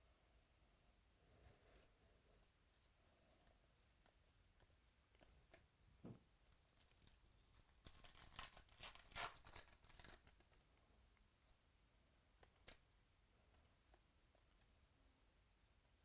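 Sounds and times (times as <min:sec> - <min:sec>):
foil wrapper tearing and crinkling: 0:06.9 - 0:10.4.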